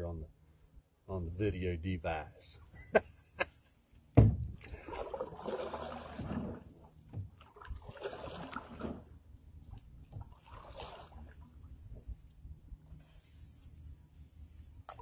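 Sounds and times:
water swishing off paddle: 0:04.5 - 0:12.3.

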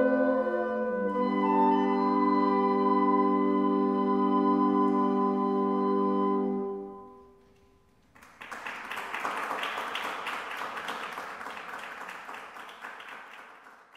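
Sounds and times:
audience applause: 0:08.1 - 0:13.9.

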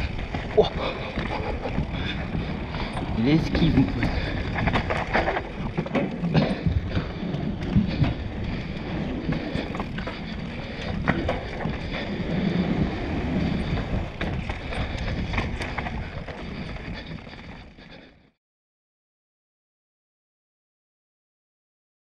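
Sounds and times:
bike tyre noise: 0:00.0 - 0:18.4.

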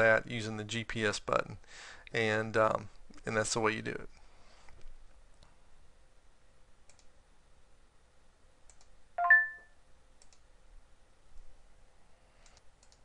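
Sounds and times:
faint mouse clicks: 0:06.8 - 0:07.2, 0:08.6 - 0:09.0, 0:10.2 - 0:10.5, 0:12.4 - 0:13.0
electronic three-tone alert chime: 0:09.2 - 0:09.7.

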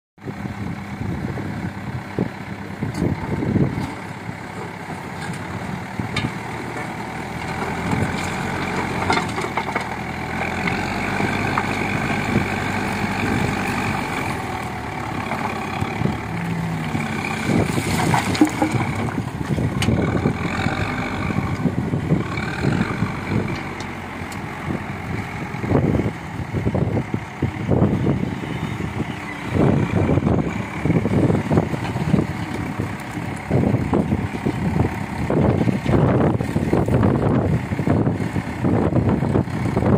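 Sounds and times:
diesel engine running hard: 0:00.2 - 0:39.9
stone crunching in bucket: 0:17.4 - 0:19.4.

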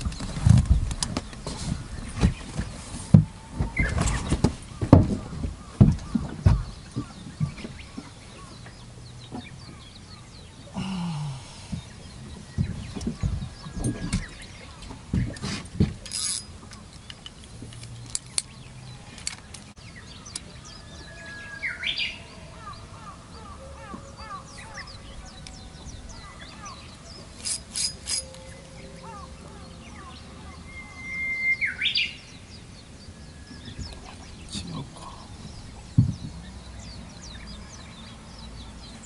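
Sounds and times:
faint bird chirps: 0:20.2 - 0:32.3
bird whistling with rising flourish: 0:23.7 - 0:32.4.

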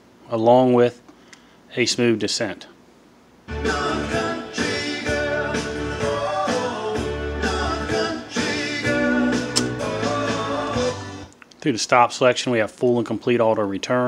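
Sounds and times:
music with singing voice: 0:03.5 - 0:11.4.

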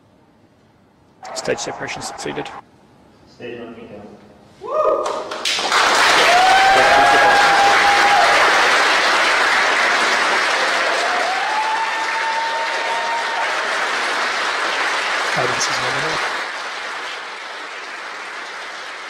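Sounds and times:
long cheering shouts: 0:04.6 - 0:05.3, 0:06.0 - 0:08.8, 0:10.5 - 0:13.9
people clapping and cheering: 0:04.9 - 0:19.0.

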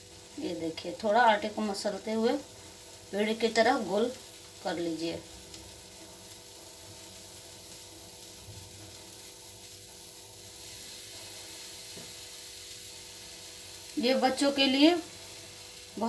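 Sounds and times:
gas stove hiss: 0:00.0 - 0:16.0.

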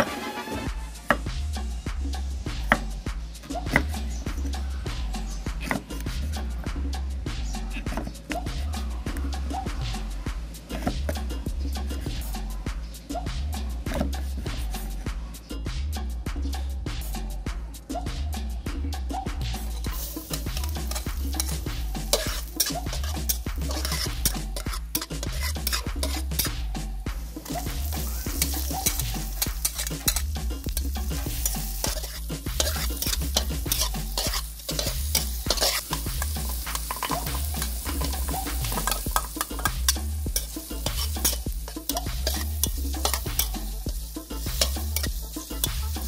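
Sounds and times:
metal spatula scraping a wok: 0:19.6 - 0:26.6, 0:27.2 - 0:46.0
food sizzling in hot oil: 0:19.6 - 0:46.0.

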